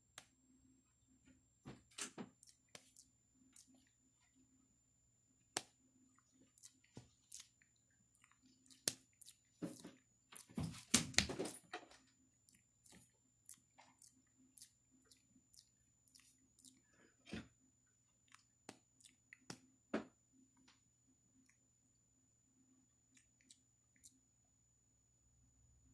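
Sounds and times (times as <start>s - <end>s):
mouth-smacking: 18.3s - 19.7s.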